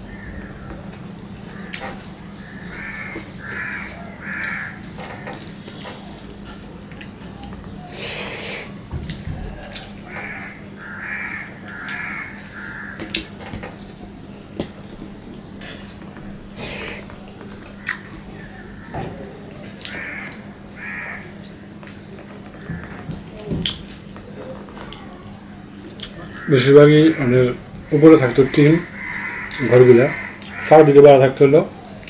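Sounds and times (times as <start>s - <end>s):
bird calling: 0.0s - 6.4s, 9.5s - 23.1s, 26.1s - 31.0s
chewing: 2.6s - 10.4s, 11.7s - 18.7s.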